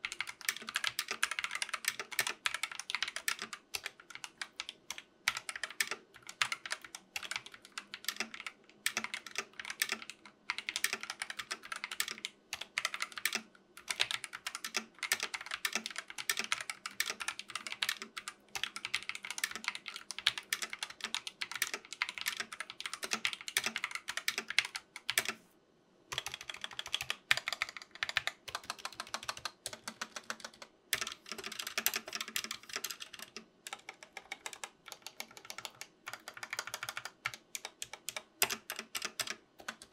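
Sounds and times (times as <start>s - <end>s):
fast typing on mechanical keyboard: 0.0s - 25.4s, 26.1s - 39.9s.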